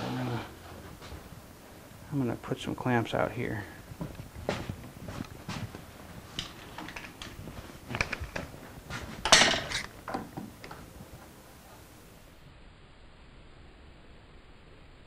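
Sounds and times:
clamps clicking and clattering: 0:06.4 - 0:08.5, 0:09.2 - 0:10.4.

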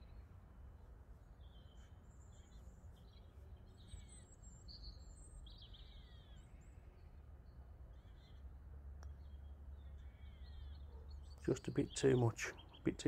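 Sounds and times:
birds chirping: 0:07.5 - 0:13.0.

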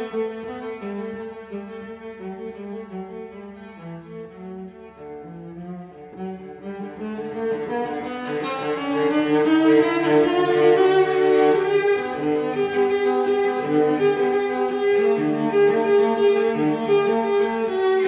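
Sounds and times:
bowed strings with cello: 0:00.0 - 0:18.0.

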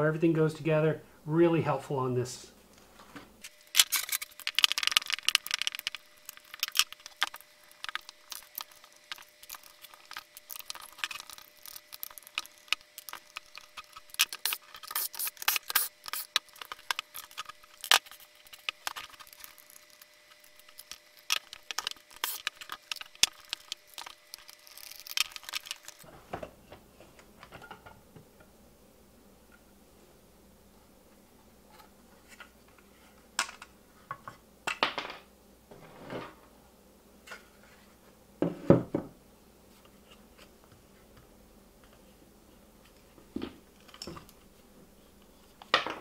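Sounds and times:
screwdriver and plastic parts clicking: 0:03.8 - 0:26.1.

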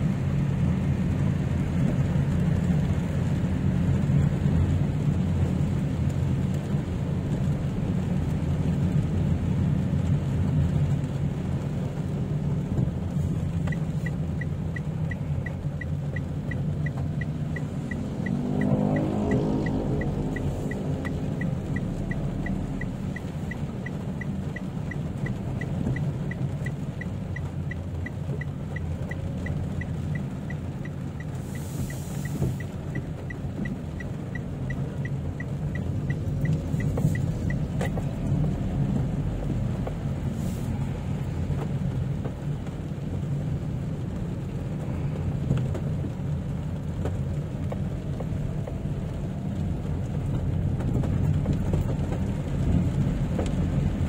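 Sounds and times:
car engine and road noise: 0:00.0 - 0:54.0
heavy rain: 0:00.0 - 0:54.0
turn signal ticking: 0:00.0 - 0:54.0.

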